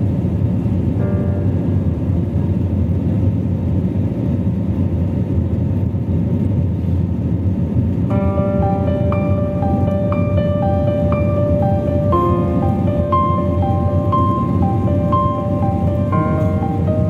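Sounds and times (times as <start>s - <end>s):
jet engines rumbling: 0.0s - 17.0s
background music with held notes: 1.0s - 2.9s, 8.1s - 17.0s.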